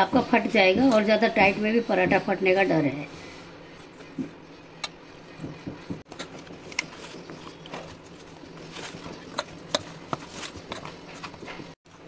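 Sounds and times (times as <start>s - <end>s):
hands kneading dough: 3.7s - 12.0s.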